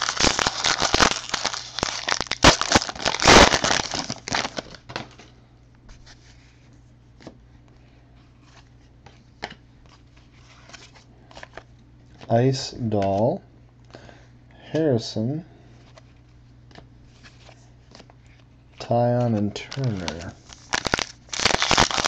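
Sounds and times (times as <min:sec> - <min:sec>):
foil wrapper tearing and crinkling: 0:00.0 - 0:05.2, 0:19.6 - 0:22.0.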